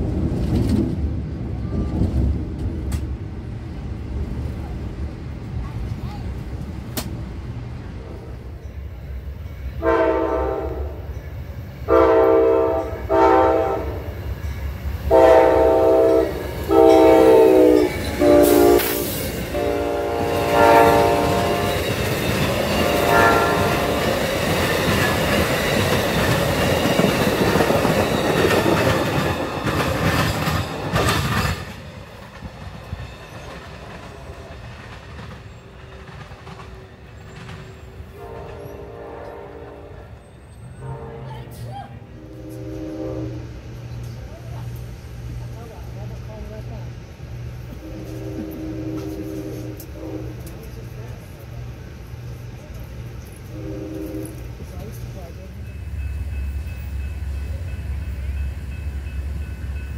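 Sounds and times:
train cars rumbling and clattering: 0.0 - 59.9
train air horn blasts: 9.8 - 11.1, 11.9 - 14.1, 15.1 - 22.0, 22.6 - 24.2, 38.1 - 43.5, 47.8 - 50.5, 53.5 - 54.4.

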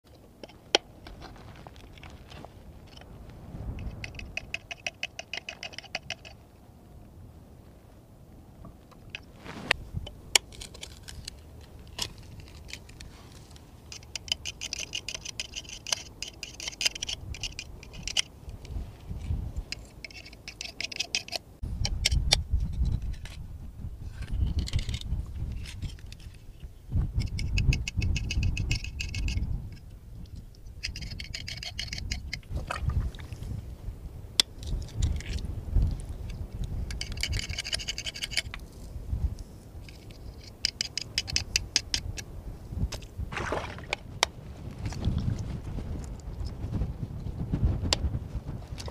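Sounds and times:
gritty shell scraping: 0.4 - 6.4, 8.6 - 33.6, 34.4 - 42.3.

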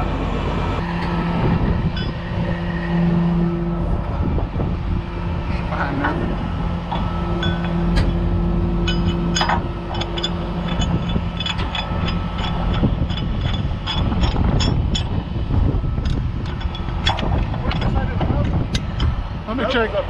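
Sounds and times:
diesel engine running: 0.0 - 20.0
hum: 0.0 - 20.0
sharp clicks and clanks: 6.9 - 15.2, 16.0 - 19.2.

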